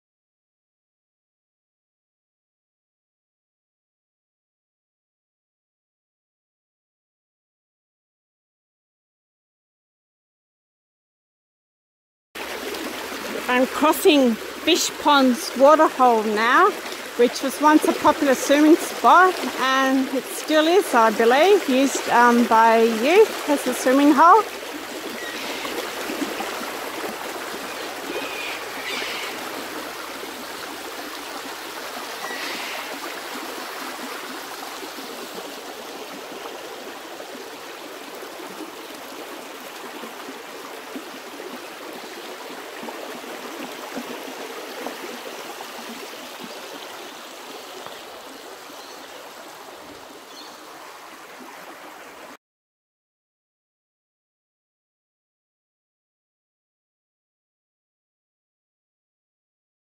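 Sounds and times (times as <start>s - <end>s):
creek water rushing over rocks: 12.4s - 52.4s.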